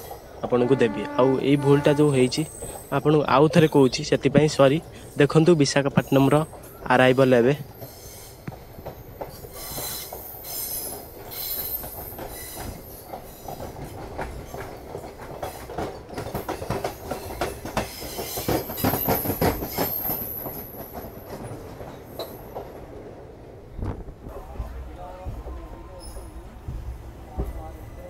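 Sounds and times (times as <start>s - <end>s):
train wheels clattering over rail joints: 6.3s - 23.0s.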